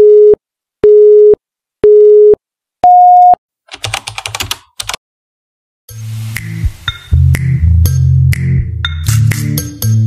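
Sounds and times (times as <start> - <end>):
rapid clicking: 3.7 - 5.0.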